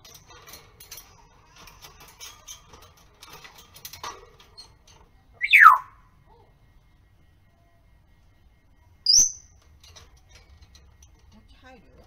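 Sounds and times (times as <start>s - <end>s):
parrot clambering on wire cage: 0.0s - 5.8s, 9.4s - 11.5s
parrot whistle sliding downward: 5.4s - 5.9s.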